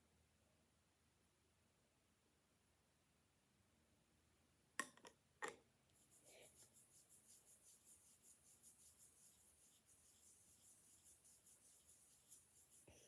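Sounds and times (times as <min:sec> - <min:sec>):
faint rhythmic rubbing: 0:05.9 - 0:13.0.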